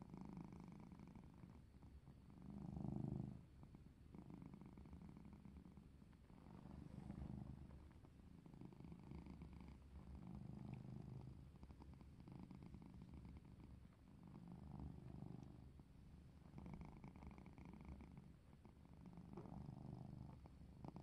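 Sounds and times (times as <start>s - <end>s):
cat purring: 0.0s - 21.0s.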